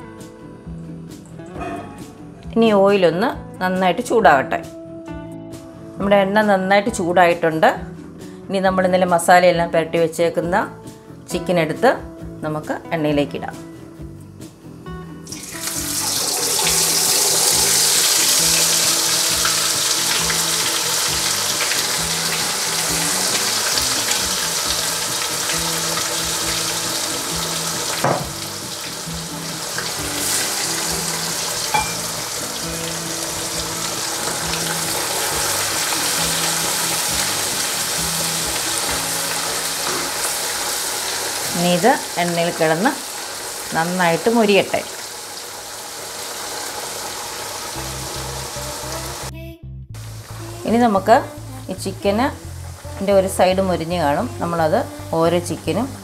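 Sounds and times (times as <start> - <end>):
chicken deep-frying in oil: 15.3 - 49.3.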